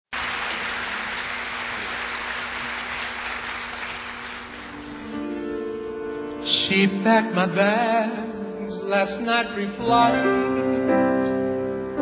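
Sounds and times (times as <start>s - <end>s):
audience applauding: 0.1s - 5.0s.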